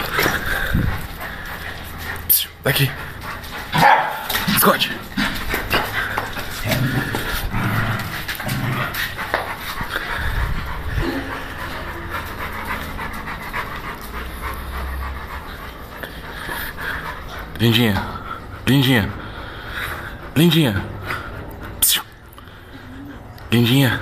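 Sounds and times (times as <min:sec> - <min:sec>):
dog panting: 0:00.0 - 0:24.0.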